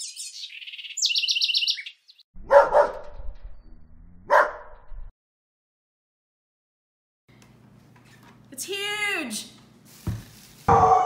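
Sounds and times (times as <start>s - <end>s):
bird trill: 0.0s - 2.2s
birds chirping: 0.0s - 2.2s
dog barking: 2.4s - 3.1s, 4.3s - 4.7s.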